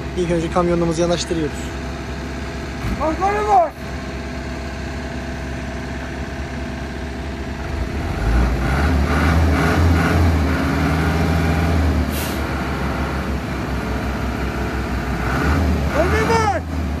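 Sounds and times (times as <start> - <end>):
dump truck engine running: 0.0 - 17.0.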